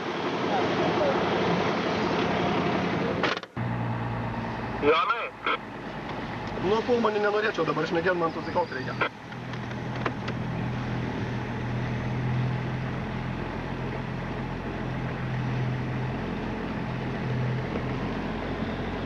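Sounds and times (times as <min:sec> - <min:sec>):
car engine humming: 0:00.0 - 0:19.0.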